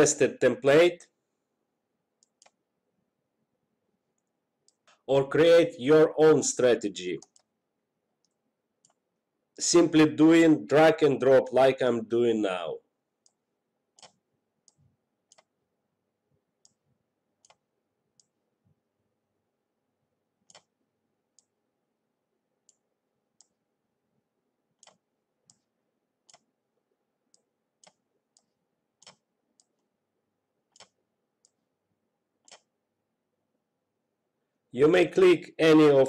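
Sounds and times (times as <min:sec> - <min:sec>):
faint computer mouse clicks: 0:02.2 - 0:02.6, 0:07.2 - 0:07.5, 0:14.0 - 0:15.5, 0:17.4 - 0:17.6, 0:20.4 - 0:20.7, 0:24.8 - 0:26.5, 0:27.3 - 0:29.9, 0:30.7 - 0:31.6, 0:32.4 - 0:32.7.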